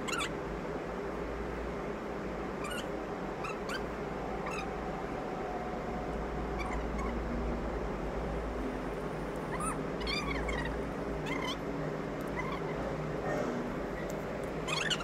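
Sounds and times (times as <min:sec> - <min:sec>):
pitched animal calls: 0:00.0 - 0:00.3, 0:06.6 - 0:07.2, 0:09.5 - 0:11.6, 0:12.3 - 0:13.6, 0:14.6 - 0:15.0
steady low hum: 0:00.0 - 0:15.0.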